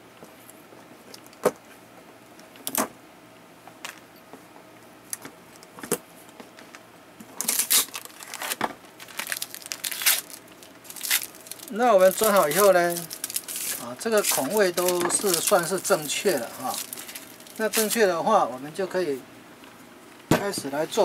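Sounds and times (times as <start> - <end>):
plastic sheet crinkling: 7.4 - 18.1.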